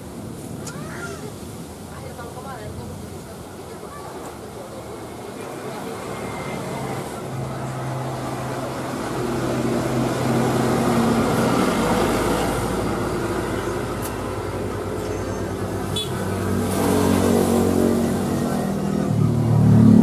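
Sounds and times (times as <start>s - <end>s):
vehicle passing loudly: 5.7s - 20.0s.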